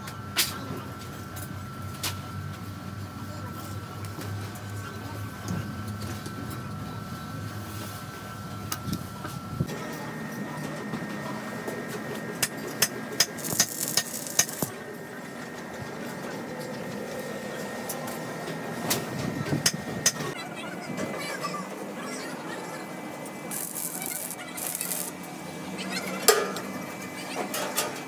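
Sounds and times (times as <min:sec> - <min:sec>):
arc welding hiss: 0:13.2 - 0:14.7, 0:23.5 - 0:25.2.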